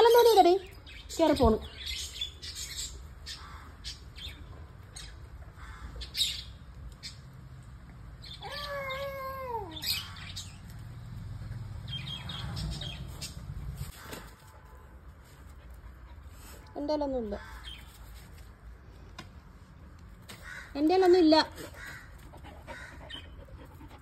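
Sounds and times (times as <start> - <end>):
cat meowing: 8.4 - 9.8.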